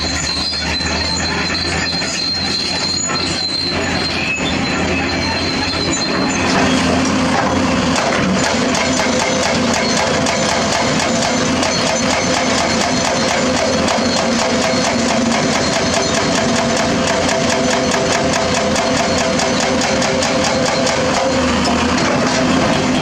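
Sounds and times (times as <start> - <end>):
diesel engine droning under load: 0.0 - 23.0
hydraulic breaker hammering rock: 5.8 - 23.0.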